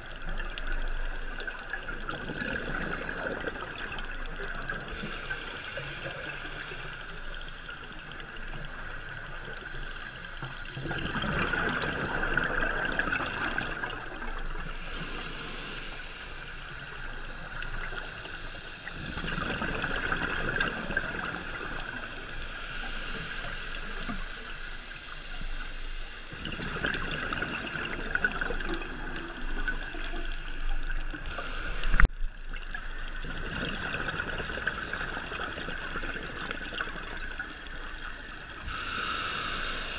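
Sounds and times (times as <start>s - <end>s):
regulator hiss: 0.8s - 10.8s, 14.5s - 19.3s, 20.8s - 26.4s, 29.0s - 32.1s, 37.5s - 39.9s
exhaled bubbles rushing: 10.8s - 14.6s, 19.0s - 22.0s, 26.3s - 31.0s, 32.7s - 38.1s.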